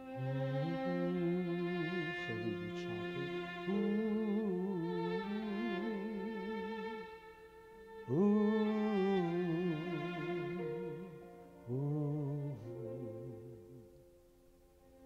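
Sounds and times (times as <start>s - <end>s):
bowed string instrument music: 0.0s - 15.0s.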